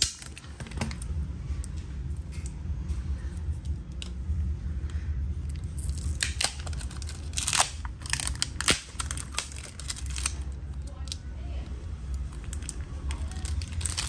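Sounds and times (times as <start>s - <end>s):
plastic film crinkling and tearing: 0.0s - 1.0s, 5.5s - 11.2s, 12.2s - 14.0s
steady low hum: 0.0s - 14.0s.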